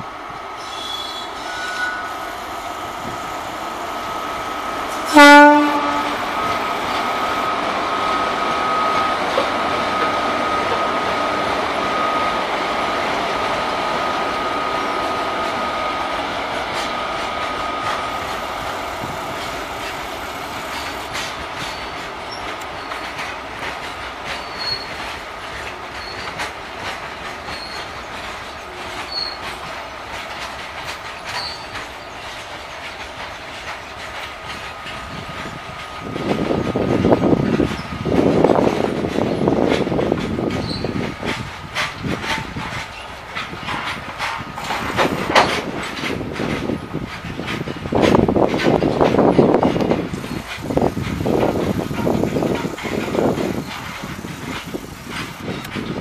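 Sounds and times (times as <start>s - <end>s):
electric locomotive whine and rumble: 0.0s - 56.0s
train wheel squeaks: 0.6s - 2.4s, 17.6s - 56.0s
train wheels clicking over rail joints: 0.7s - 56.0s.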